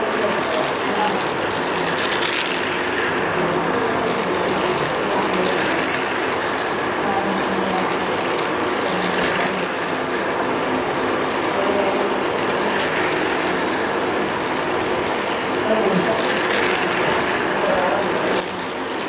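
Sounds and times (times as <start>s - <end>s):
toy train motor whirring: 0.0s - 19.0s.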